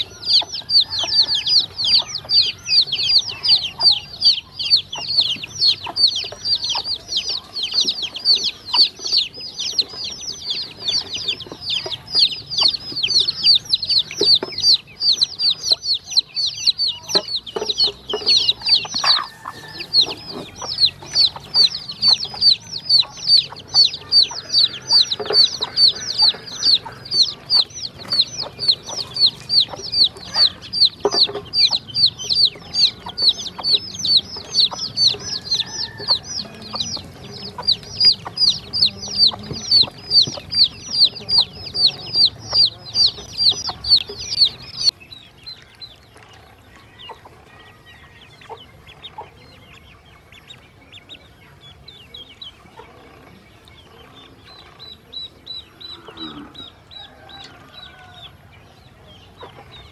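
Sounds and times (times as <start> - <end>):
chicks and ducklings peeping: 0.0 - 59.9.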